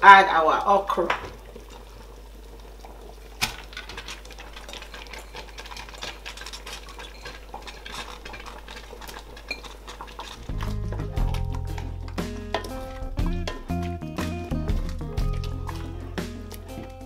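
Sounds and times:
bowl knocking on pot: 0:10.5 - 0:15.8.

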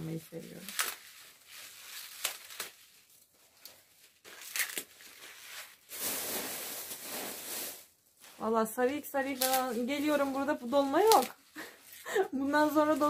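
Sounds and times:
leaves rustling: 0:00.0 - 0:13.0
leaves snapping: 0:00.6 - 0:01.2, 0:01.8 - 0:02.9, 0:03.6 - 0:05.4, 0:09.3 - 0:10.0, 0:10.8 - 0:11.4.

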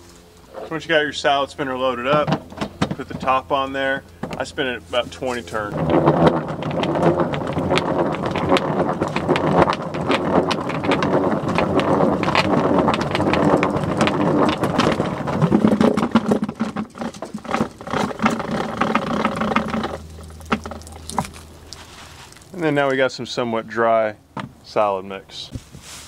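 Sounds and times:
salad spinner whirring and rattling: 0:05.5 - 0:22.6.

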